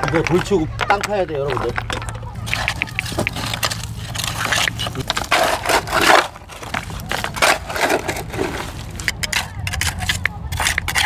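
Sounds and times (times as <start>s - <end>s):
shovel digging into gravel: 2.5s - 11.0s.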